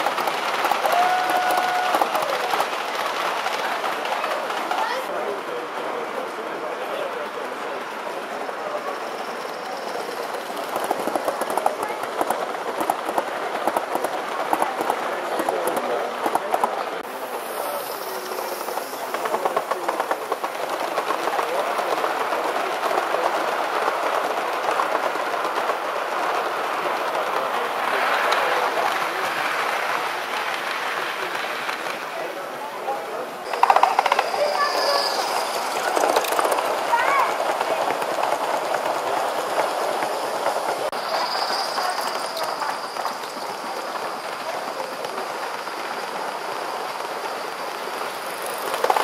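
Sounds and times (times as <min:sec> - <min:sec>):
model train wheels rattling on rails: 0:00.0 - 0:49.0
steam hissing: 0:07.6 - 0:49.0
clicking over rail joints: 0:09.8 - 0:17.1, 0:33.4 - 0:41.0, 0:41.7 - 0:49.0.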